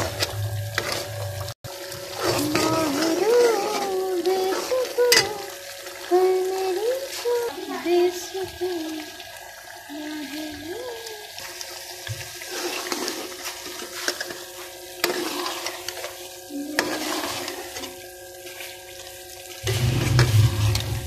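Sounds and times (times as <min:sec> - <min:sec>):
curry sizzling in a pot: 0:00.0 - 0:21.0.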